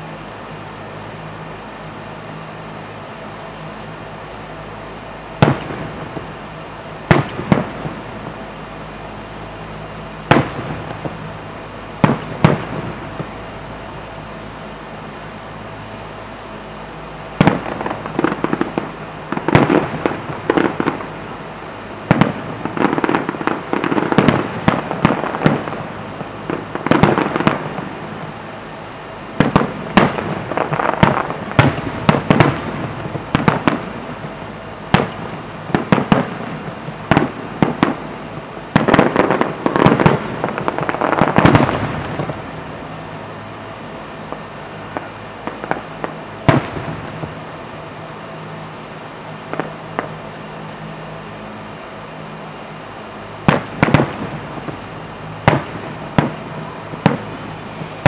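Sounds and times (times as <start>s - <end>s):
fireworks bursting: 0.0s - 58.0s
rapid pops and crackling: 7.1s - 8.4s, 10.3s - 11.3s, 12.0s - 13.4s, 17.4s - 21.2s, 22.0s - 28.0s, 29.3s - 42.5s, 44.2s - 47.4s, 53.5s - 58.0s.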